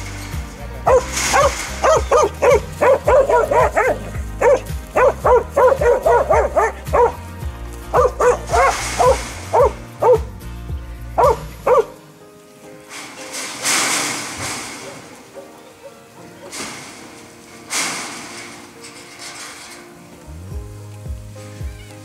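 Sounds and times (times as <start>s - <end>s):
dog barking sharply: 0.9s - 7.2s, 8.0s - 10.3s, 11.2s - 12.0s.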